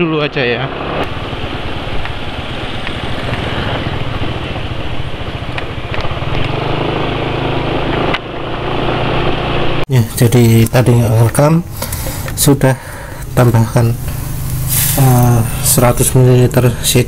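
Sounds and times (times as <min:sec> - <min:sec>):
wind and road noise: 0:00.0 - 0:17.0
motor scooter engine running: 0:00.8 - 0:09.8.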